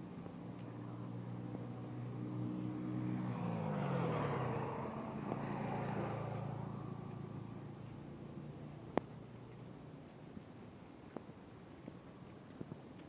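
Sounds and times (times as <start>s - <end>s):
road noise: 0.0s - 10.4s
vehicle engine passing: 0.8s - 9.5s.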